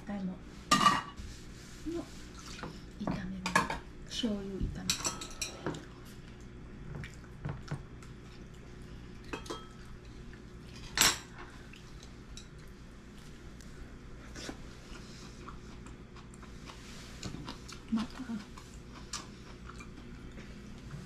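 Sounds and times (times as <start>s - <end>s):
chopsticks clinking on bowls: 9.3s - 9.8s.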